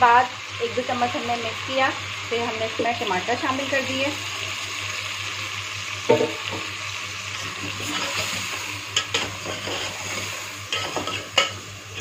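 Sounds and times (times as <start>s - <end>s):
food sizzling in hot oil: 0.0s - 12.0s
metal spoon knocking on pot: 6.1s - 6.4s.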